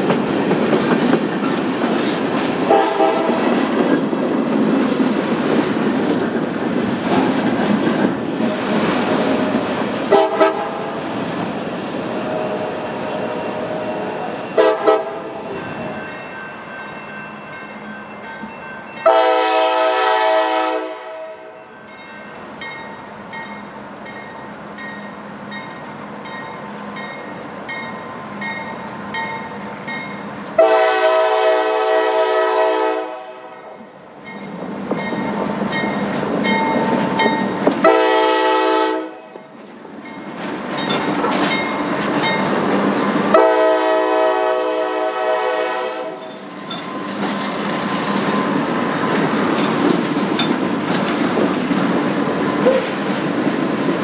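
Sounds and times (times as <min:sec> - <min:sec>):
freight train rumble and clatter: 0:00.0 - 0:54.0
locomotive horn blasts: 0:02.7 - 0:03.5, 0:10.1 - 0:10.7, 0:13.5 - 0:15.4, 0:19.0 - 0:21.6, 0:30.6 - 0:33.7, 0:37.8 - 0:39.4, 0:43.3 - 0:46.2.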